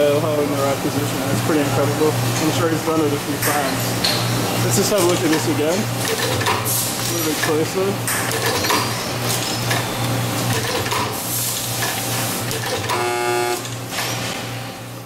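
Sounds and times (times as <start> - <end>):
drilling machine running: 12.3 - 13.8.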